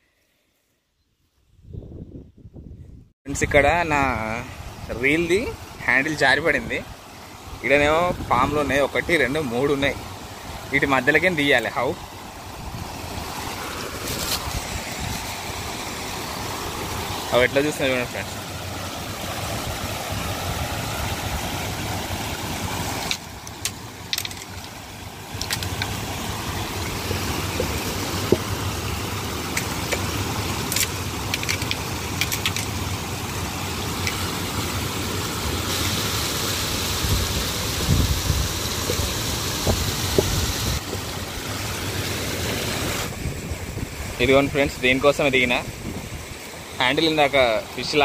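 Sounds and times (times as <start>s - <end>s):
water rushing over rocks: 3.3s - 48.0s
sharp clicks and knocks: 23.0s - 26.0s, 29.5s - 32.8s.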